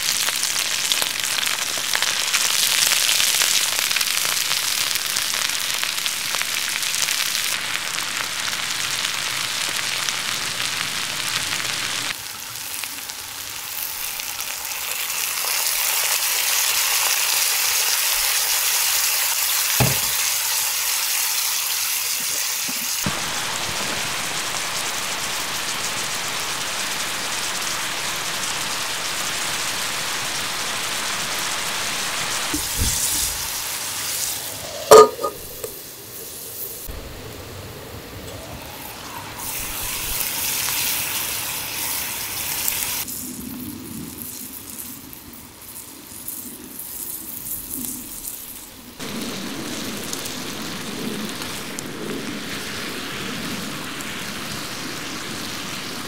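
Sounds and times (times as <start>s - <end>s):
mushrooms sizzling in skillet: 0.0s - 56.0s
knock: 19.8s - 20.2s.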